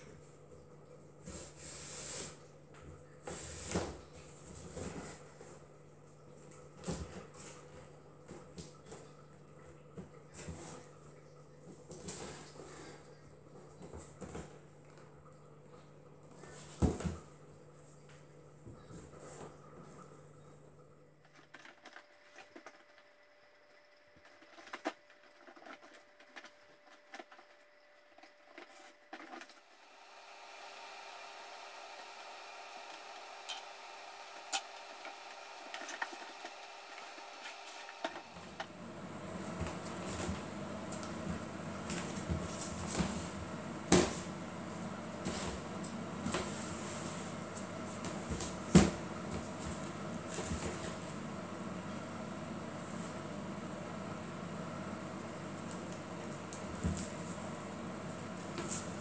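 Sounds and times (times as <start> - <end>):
woven basket rustling and crackling: 24.1 - 29.7.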